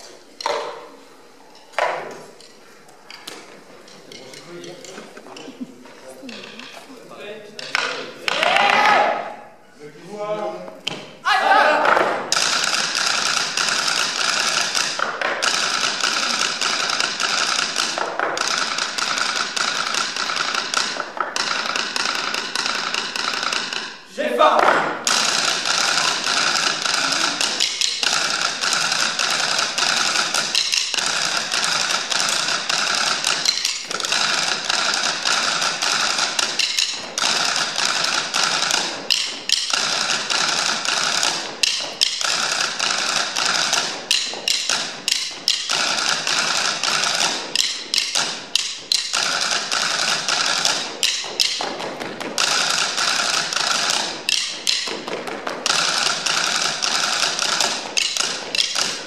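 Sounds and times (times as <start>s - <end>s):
drumsticks tapping on wooden tables: 0.4s - 0.9s, 11.8s - 24.0s, 24.6s - 59.0s.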